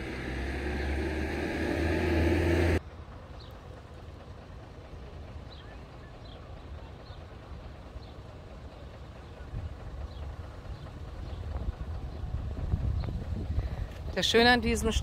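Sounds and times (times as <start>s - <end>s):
wind buffeting the microphone: 9.4s - 15.0s.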